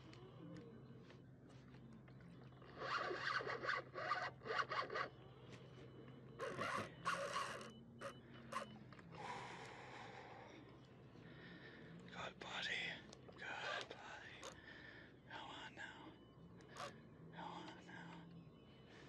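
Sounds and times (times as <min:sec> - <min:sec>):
fishing reel drag buzzing: 0:02.6 - 0:05.1.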